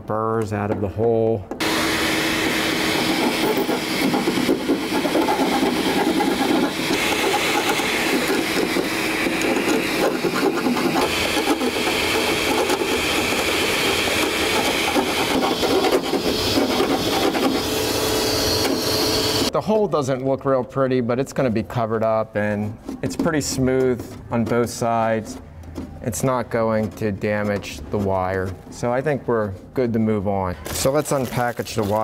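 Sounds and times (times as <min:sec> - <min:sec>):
file scraping metal: 0:01.6 - 0:19.5, 0:22.3 - 0:28.9
vacuum cleaner running: 0:01.6 - 0:19.5.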